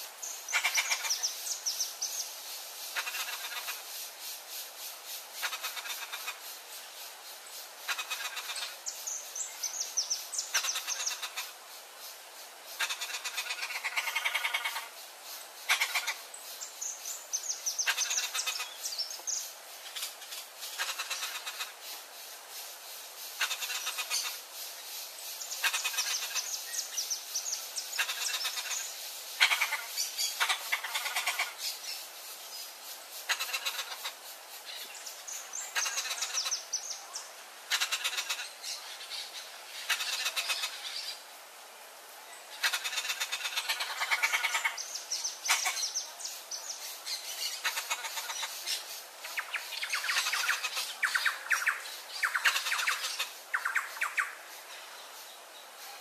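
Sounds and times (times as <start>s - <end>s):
parrots rasping chatter: 0.5s - 1.3s, 2.9s - 3.8s, 5.4s - 6.4s, 7.9s - 8.8s, 10.5s - 11.5s, 12.8s - 15.0s, 15.6s - 16.2s, 17.8s - 18.8s, 20.7s - 21.8s, 23.4s - 24.4s, 25.6s - 26.5s, 28.0s - 28.8s, 29.4s - 31.6s, 33.3s - 34.2s, 35.7s - 36.7s, 37.7s - 38.6s, 39.8s - 41.0s, 42.6s - 44.8s, 45.5s - 46.0s, 47.4s - 54.2s.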